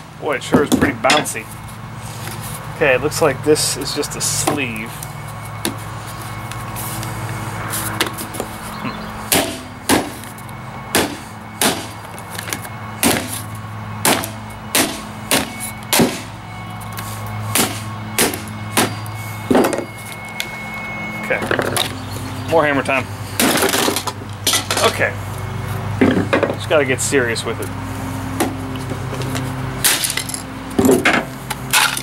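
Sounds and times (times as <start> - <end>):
hammer striking metal: 0.6 - 1.4, 9.3 - 10.2.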